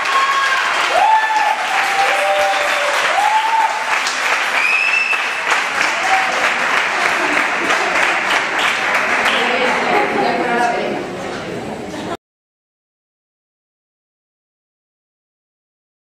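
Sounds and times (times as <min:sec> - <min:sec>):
audience applauding: 0:00.0 - 0:10.3
crowd cheering: 0:00.0 - 0:10.6.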